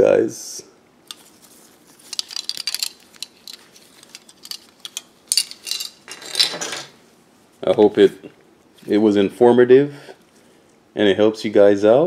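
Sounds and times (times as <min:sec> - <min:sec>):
plastic parts clattering on table: 0:02.0 - 0:07.0.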